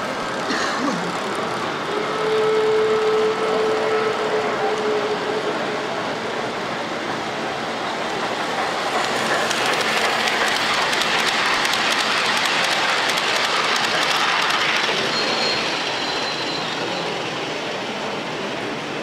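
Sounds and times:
model train wheels clicking on rails: 0:06.9 - 0:17.6.

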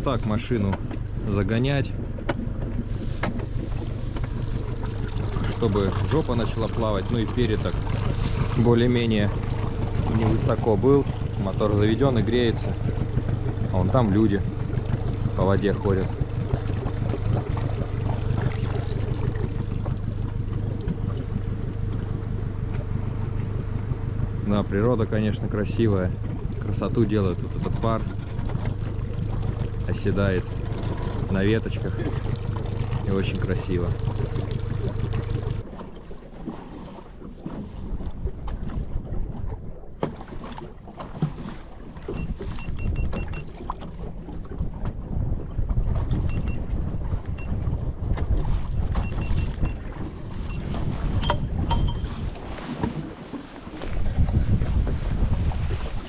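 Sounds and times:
engine knocks: 0:00.0 - 0:35.6
outboard motor idling: 0:00.0 - 0:56.0
short electronic beeps: 0:42.2 - 0:43.5, 0:46.3 - 0:46.6, 0:49.0 - 0:49.8, 0:51.2 - 0:52.2.

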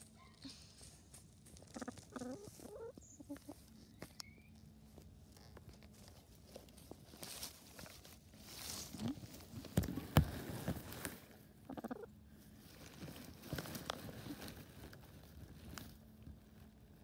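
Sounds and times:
hens clucking: 0:00.0 - 0:04.2, 0:11.3 - 0:12.6.

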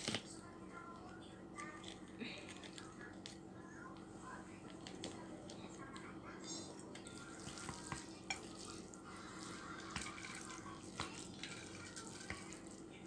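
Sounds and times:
wet squelching of noodles: 0:07.2 - 0:13.0.

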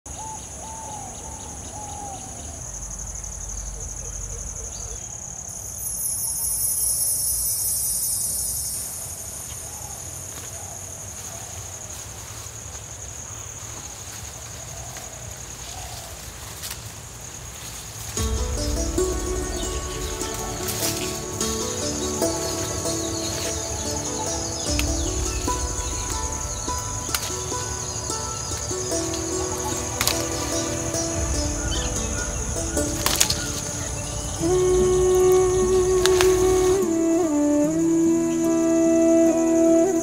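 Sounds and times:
insects droning: 0:00.1 - 0:40.0
bird calls: 0:18.2 - 0:40.0
music: 0:18.2 - 0:40.0.

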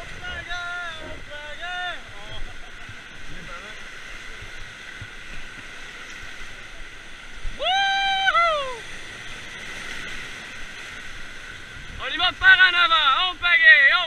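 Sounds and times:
whitewater rapids rushing: 0:00.0 - 0:14.0
person yelling: 0:07.5 - 0:08.8.

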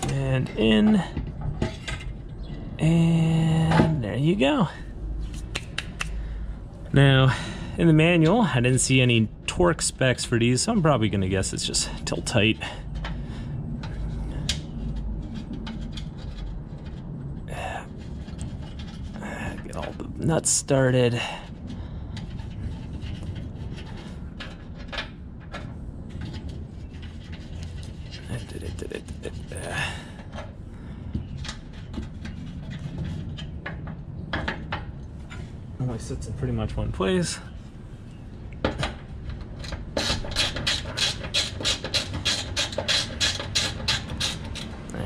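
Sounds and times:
low rumble: 0:00.0 - 0:20.3.

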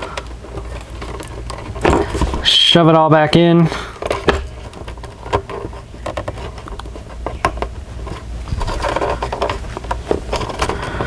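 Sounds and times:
cables clicking and scraping: 0:00.0 - 0:02.7, 0:03.9 - 0:11.0.

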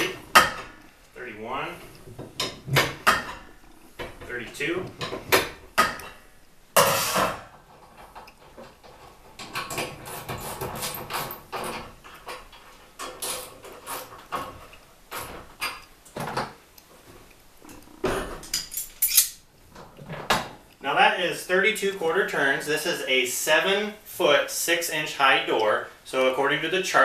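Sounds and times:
metal bars clinking on spring: 0:18.2 - 0:19.4.

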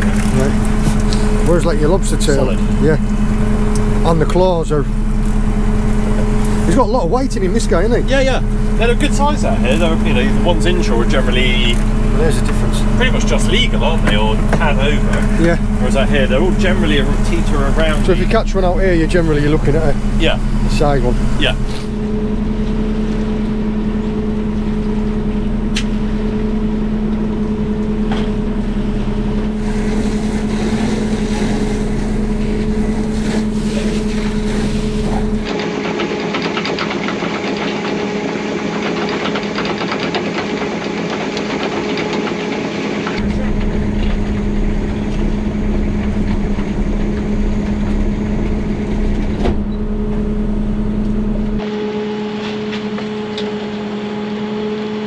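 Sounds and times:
boat engine and net hauler hum: 0:00.0 - 0:55.0.

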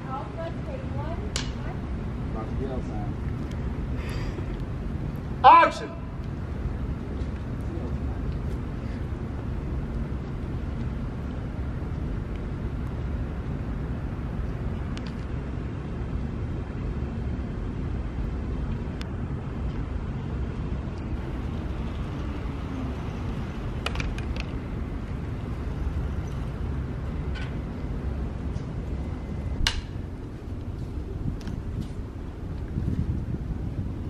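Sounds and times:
wind rumble on microphone: 0:06.2 - 0:34.0.

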